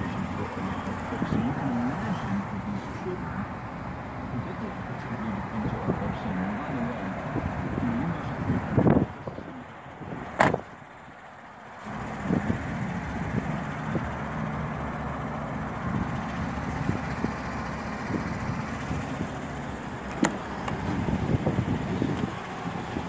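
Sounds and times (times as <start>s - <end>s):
outdoor background noise: 0.0s - 23.0s
truck engine idling: 0.0s - 23.0s
truck door shutting: 10.3s - 10.8s, 20.0s - 21.4s.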